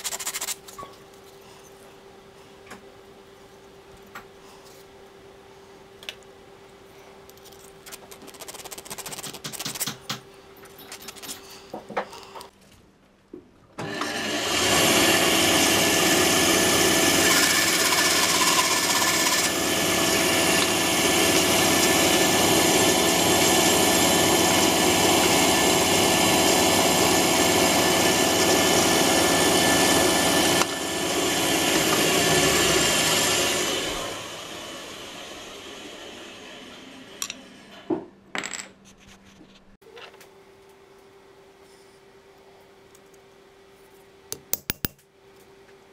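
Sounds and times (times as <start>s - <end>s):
small parts clicking and knocking: 7.3s - 11.6s
bandsaw cutting wood: 13.8s - 35.6s.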